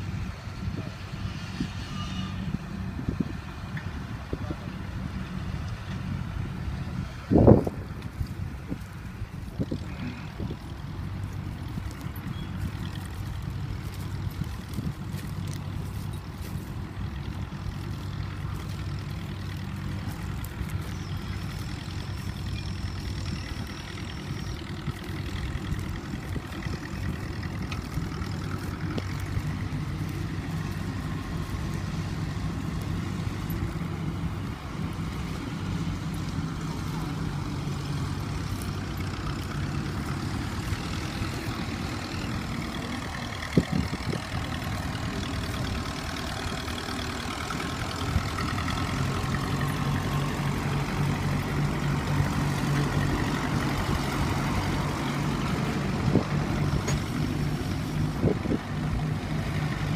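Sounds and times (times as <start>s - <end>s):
tractor engines running: 0.0s - 59.9s
faint voices: 9.6s - 11.2s, 14.9s - 52.6s.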